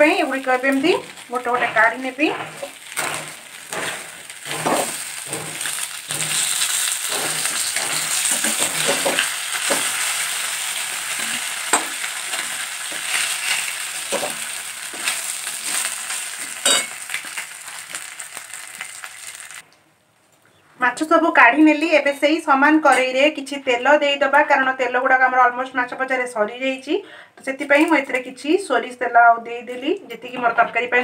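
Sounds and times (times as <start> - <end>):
spatula scraping pan: 0.0 - 17.4
hot oil sizzling: 0.0 - 19.6.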